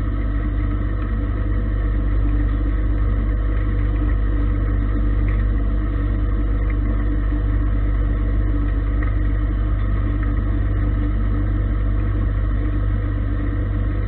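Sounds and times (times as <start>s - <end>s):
lathe machine hum: 0.0s - 14.0s.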